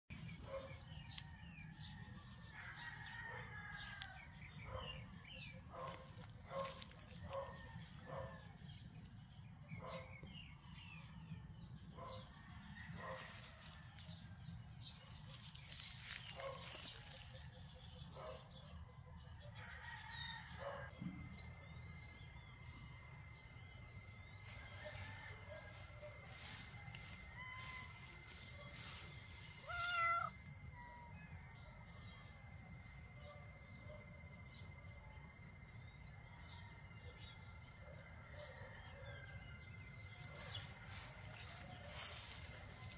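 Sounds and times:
small birds chirping: 27.4s - 30.4s.

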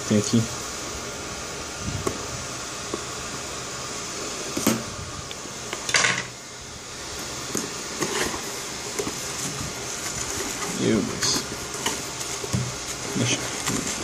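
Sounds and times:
steady hiss: 0.0s - 14.0s
cardboard box scraping rustles: 7.2s - 14.0s.

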